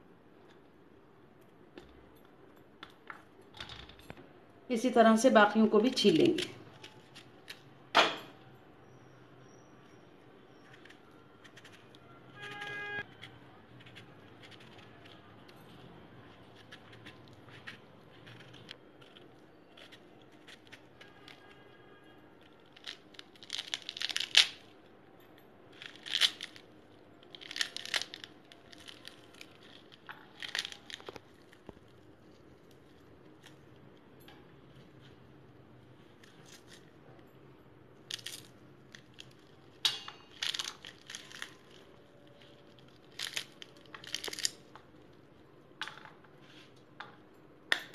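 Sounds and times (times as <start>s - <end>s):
fruit rind tearing and crackling: 6.1s - 7.8s, 10.5s - 25.0s, 25.7s - 34.1s, 38.0s - 45.4s.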